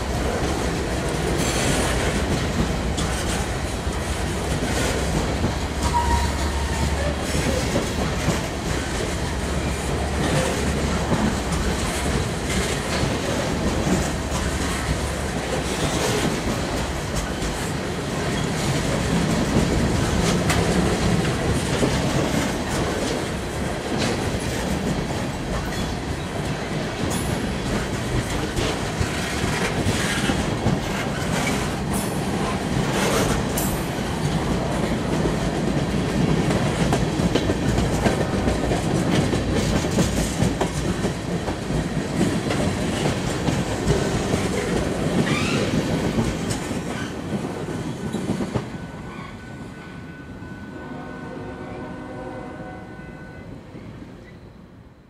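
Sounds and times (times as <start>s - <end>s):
train wheels clicking over rail joints: 0.0s - 48.7s.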